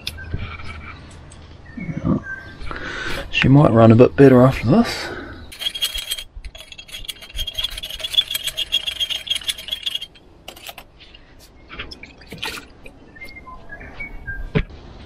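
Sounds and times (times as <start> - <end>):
metal tool scraping brass fitting: 5.5 - 10.9.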